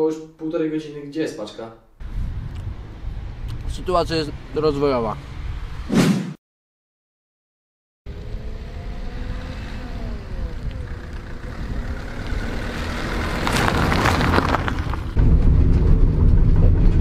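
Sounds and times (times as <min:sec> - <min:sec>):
van engine: 0:08.1 - 0:17.0
tyres crunching over gravel: 0:12.2 - 0:15.2.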